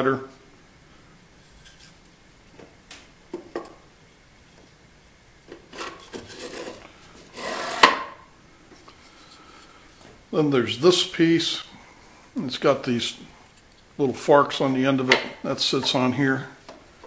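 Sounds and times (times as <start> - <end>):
slider scraping on metal rail: 5.7 - 8.0.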